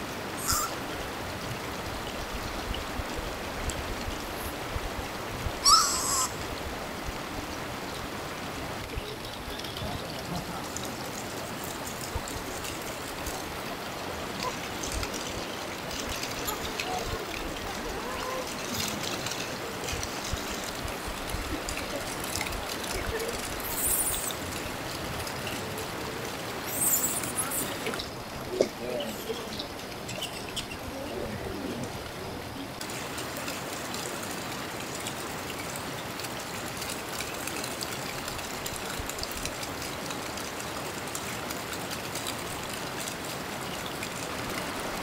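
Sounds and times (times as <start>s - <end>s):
water running: 0.0s - 45.0s
short high-pitched call: 5.6s - 6.3s.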